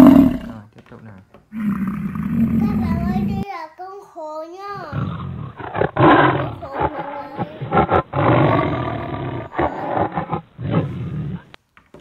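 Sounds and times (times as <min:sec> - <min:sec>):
big cat roaring: 0:00.0 - 0:00.6, 0:01.5 - 0:03.4, 0:04.9 - 0:11.6.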